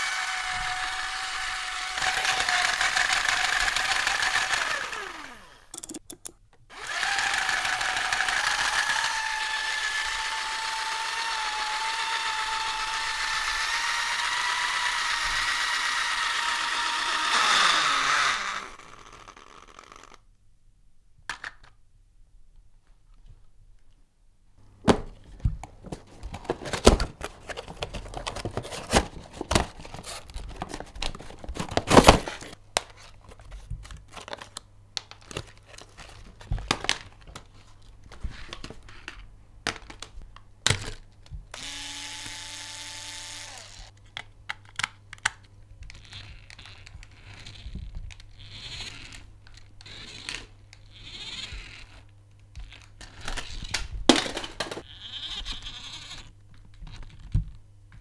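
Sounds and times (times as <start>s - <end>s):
small electric motor whining: 0.0s - 5.7s, 6.7s - 20.2s, 41.6s - 43.9s, 48.4s - 49.2s, 50.9s - 52.0s, 54.8s - 56.3s
cardboard and plastic packaging crinkling: 25.2s - 38.9s.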